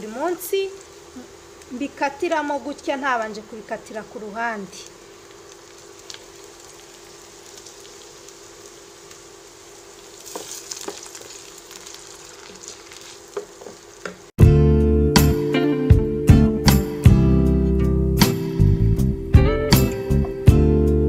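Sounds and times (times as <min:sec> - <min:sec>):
vegetables sizzling in a pan: 0:00.0 - 0:14.4
loud guitar music: 0:14.4 - 0:21.0.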